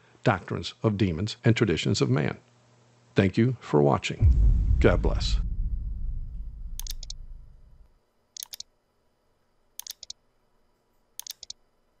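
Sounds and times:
low rumble: 0:04.2 - 0:07.9
computer mouse clicks: 0:06.8 - 0:07.2, 0:08.4 - 0:08.7, 0:09.8 - 0:10.2, 0:11.2 - 0:11.6.

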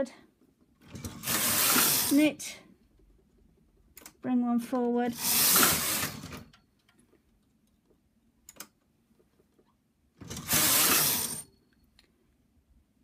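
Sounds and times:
knitting machine carriage sliding: 0:00.8 - 0:02.4, 0:05.1 - 0:06.5, 0:10.2 - 0:11.5.

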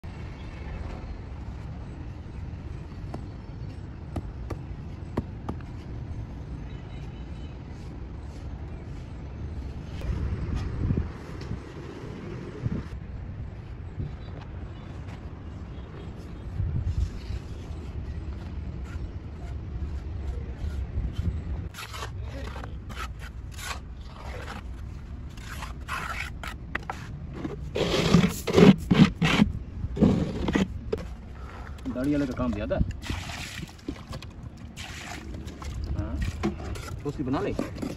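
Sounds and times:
gravel scraping and rattling: 0:21.3 - 0:33.2, 0:33.8 - 0:37.9.

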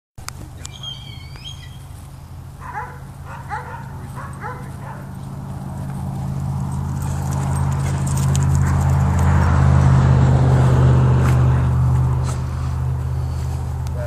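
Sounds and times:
dog whining: 0:00.6 - 0:01.8
dog yipping: 0:00.6 - 0:01.8, 0:02.6 - 0:05.1.

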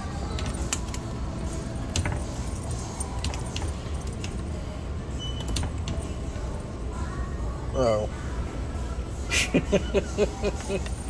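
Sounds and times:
light clicks and jingles: 0:01.7 - 0:04.5.

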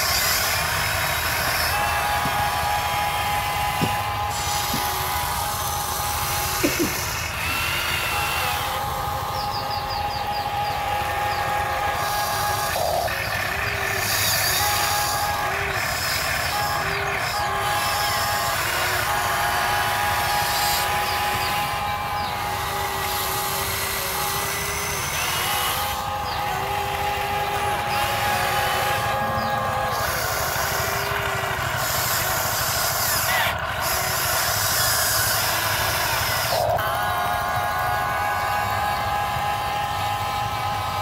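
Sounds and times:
hydraulic pump whining: 0:00.0 - 0:41.0.

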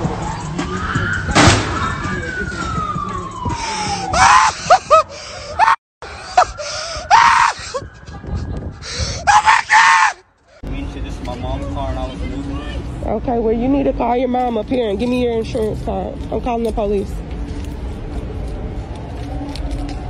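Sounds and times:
loud bang: 0:01.3 - 0:02.0
person screaming and yelling: 0:04.0 - 0:04.9, 0:07.0 - 0:07.8, 0:09.2 - 0:10.2.

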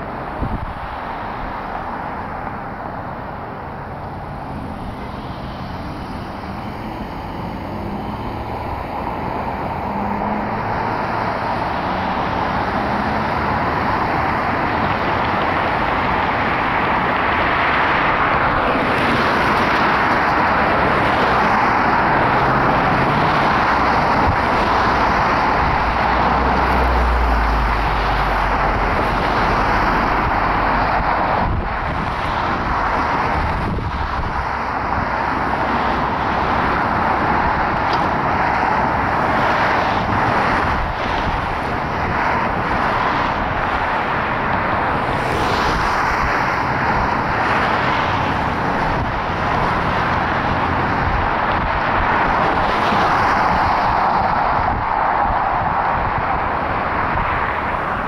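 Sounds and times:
car engines and tyre noise: 0:00.0 - 0:58.0.

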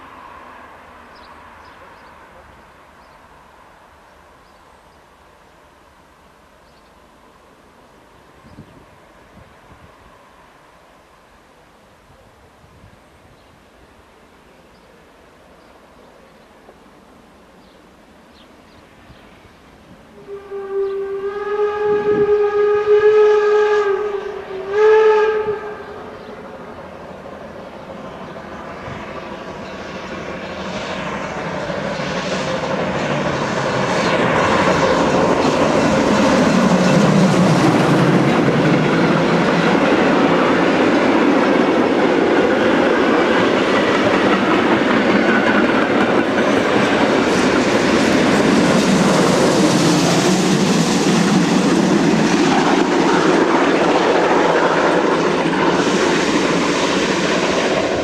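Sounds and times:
steam train passing: 0:00.0 - 0:58.0
steam locomotive whistle: 0:20.2 - 0:26.4.

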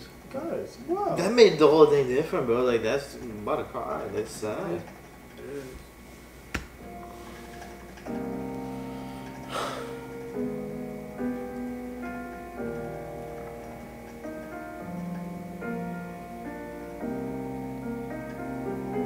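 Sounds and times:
soft piano music: 0:06.7 - 0:19.0.

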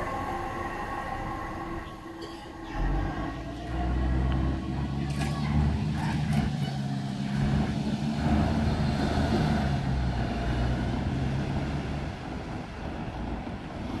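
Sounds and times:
diesel bus engine running: 0:00.0 - 0:14.0.

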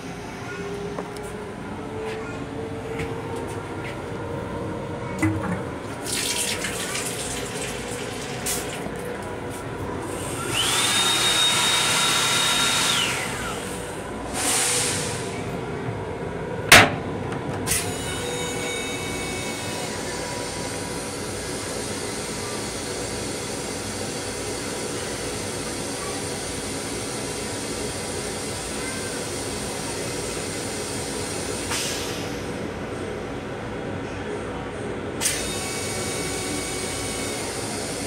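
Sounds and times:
railcar hum and rumble: 0:00.0 - 0:10.3, 0:12.9 - 0:38.0
toilet flush hiss: 0:05.2 - 0:08.9, 0:14.3 - 0:15.4, 0:31.0 - 0:32.5.

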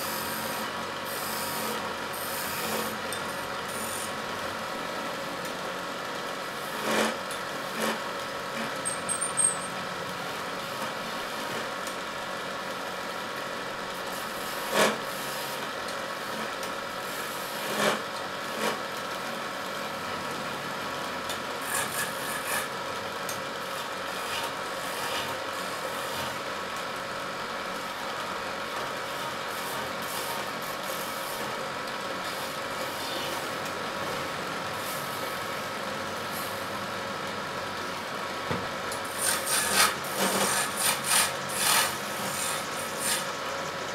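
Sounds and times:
chisel scraping spinning wood: 0:00.0 - 0:04.1, 0:06.6 - 0:09.7, 0:14.0 - 0:15.6, 0:16.2 - 0:18.9, 0:21.6 - 0:22.8, 0:23.7 - 0:26.4, 0:29.1 - 0:31.5, 0:39.0 - 0:43.5
wood lathe running: 0:00.0 - 0:05.3, 0:06.2 - 0:09.6, 0:14.0 - 0:18.8, 0:21.6 - 0:22.7, 0:23.7 - 0:26.4, 0:38.9 - 0:43.8.

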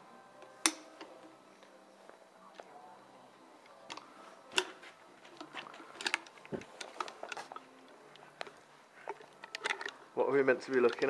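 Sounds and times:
metal clicks and clinks: 0:09.1 - 0:10.0.

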